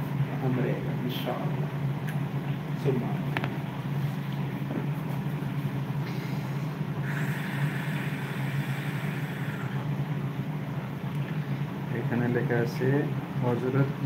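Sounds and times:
low machine hum: 0.0 - 14.0
hiss: 6.1 - 9.8.

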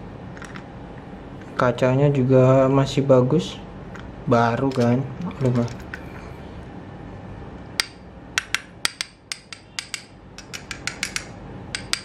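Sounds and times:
metal mirror clicking and tapping: 7.8 - 12.0.

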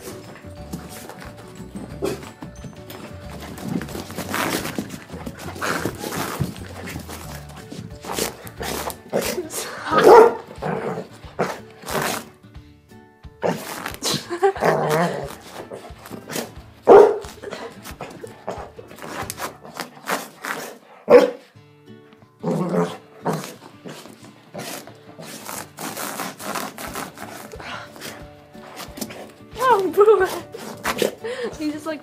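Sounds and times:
paws scuffling on carpet: 0.0 - 9.4, 13.5 - 20.8, 23.2 - 31.9
dog barking and grunting: 0.0 - 12.3, 13.4 - 21.6, 22.4 - 31.6
background music: 0.0 - 32.0.

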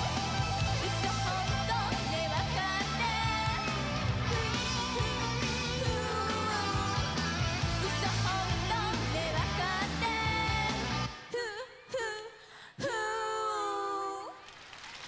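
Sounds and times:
bass and drums: 0.0 - 11.2
pop song with female vocal: 0.0 - 14.4.

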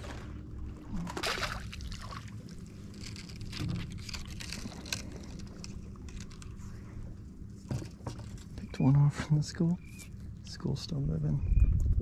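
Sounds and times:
water sloshing and splashing: 0.0 - 8.6
steady low hum: 0.0 - 12.0
wind on microphone: 11.4 - 12.0.

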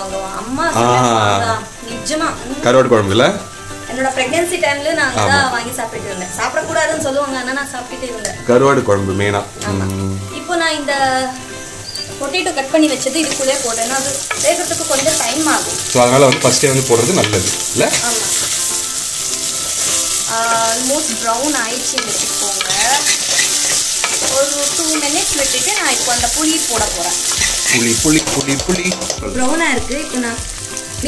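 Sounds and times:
food sizzling in oil: 0.0 - 31.0
metal ladle stirring and scraping: 22.0 - 24.3.

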